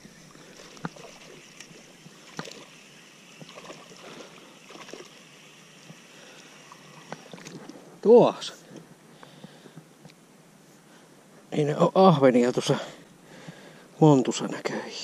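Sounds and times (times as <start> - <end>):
fishing reel reeling: 0.0 - 7.5
faint steady hiss: 0.0 - 15.0.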